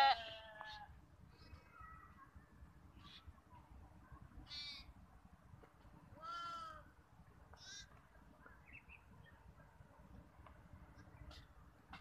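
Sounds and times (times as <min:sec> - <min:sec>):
goats bleating: 0:00.0 - 0:00.8.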